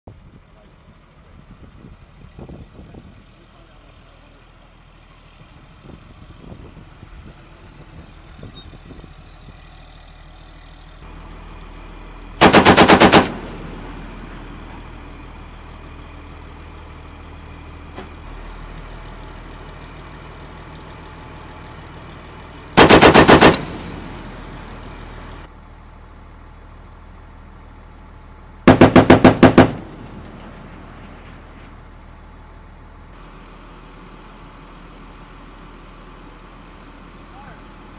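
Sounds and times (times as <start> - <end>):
vehicle engine idling: 0.1 - 37.9
heavy machine gun bursts: 12.4 - 13.8, 22.8 - 24.3, 28.7 - 30.2.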